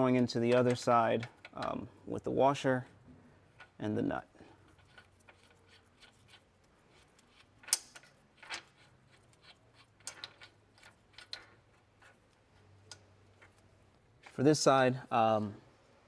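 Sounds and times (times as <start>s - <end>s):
small metallic clicks: 0.4s - 1.8s, 4.7s - 14.4s.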